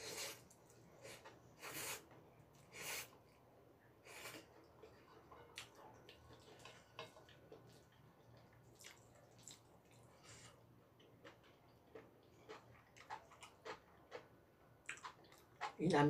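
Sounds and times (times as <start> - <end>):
slurping and chewing: 4.0 - 15.8.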